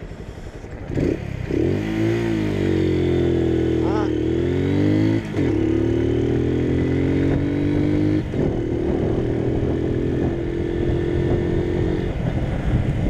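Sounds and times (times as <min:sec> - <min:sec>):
motorcycle engine: 0:00.0 - 0:13.0
wind noise on microphone: 0:05.0 - 0:13.0.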